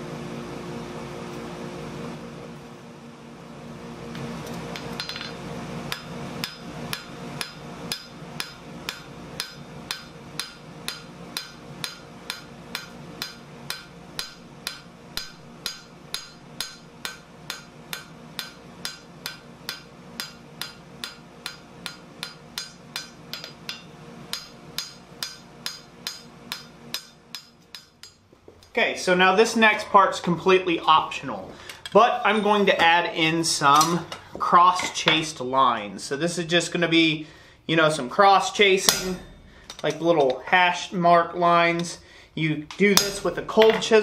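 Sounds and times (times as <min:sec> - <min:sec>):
hammer striking steel on anvil: 0:04.8 - 0:28.2, 0:38.8 - 0:40.4, 0:42.7 - 0:44.0.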